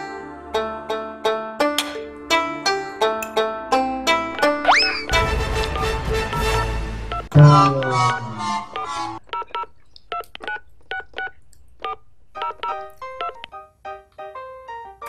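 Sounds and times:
light background music: 0:00.0 - 0:09.0
falling musical sting: 0:04.7 - 0:09.2.

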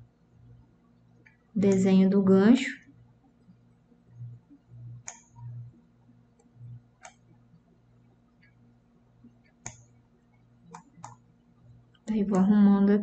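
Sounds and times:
faint low hum: 0:00.0 - 0:13.0
computer mouse clicking: 0:04.2 - 0:05.7, 0:06.3 - 0:07.4, 0:09.4 - 0:10.0, 0:10.7 - 0:11.3.

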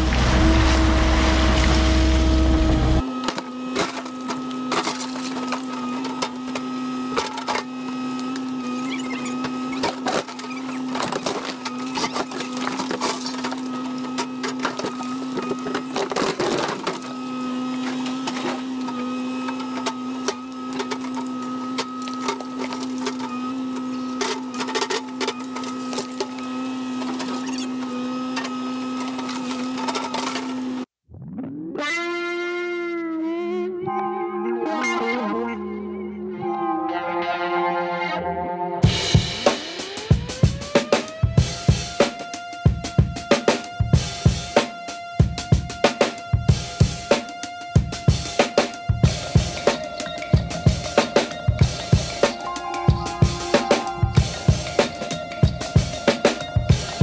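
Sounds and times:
excavator engine drone: 0:00.0 - 0:57.0
bucket knocking and scraping: 0:49.0 - 0:57.0.

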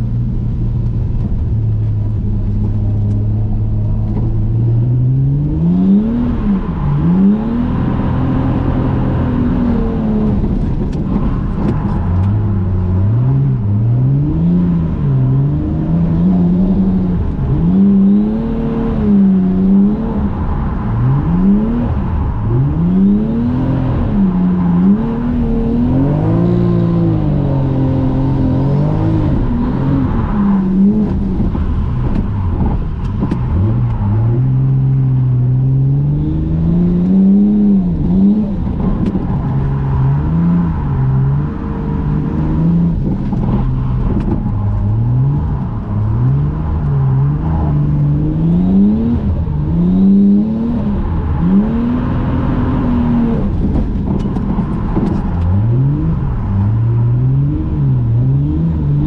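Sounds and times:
car engine revving: 0:00.0 - 0:59.0.

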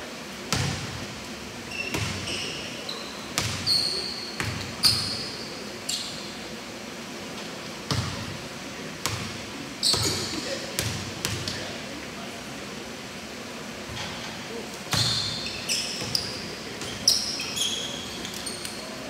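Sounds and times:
basketball bouncing on gym floor: 0:00.5 - 0:01.0, 0:03.4 - 0:03.7, 0:07.9 - 0:08.3
sneaker squeaks: 0:01.6 - 0:06.4, 0:09.8 - 0:10.5, 0:14.9 - 0:19.0.

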